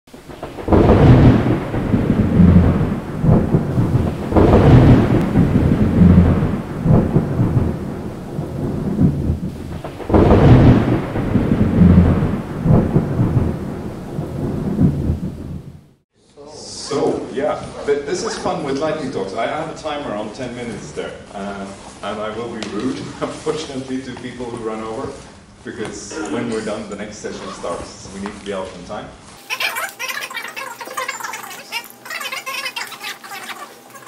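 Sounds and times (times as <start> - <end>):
thunder rumbling: 0.1 - 16.0.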